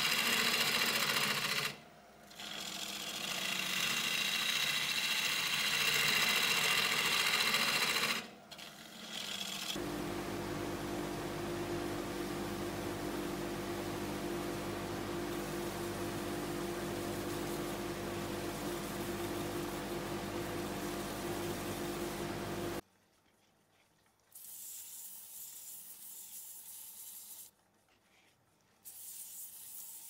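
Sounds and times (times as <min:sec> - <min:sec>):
gouge scraping spinning wood: 0:00.0 - 0:09.8
lathe hum while sanding: 0:00.0 - 0:22.8.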